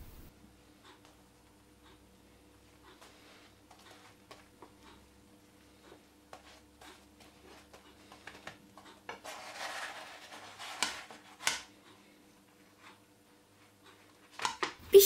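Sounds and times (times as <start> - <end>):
wooden spatula scraping pan: 9.1 - 11.6.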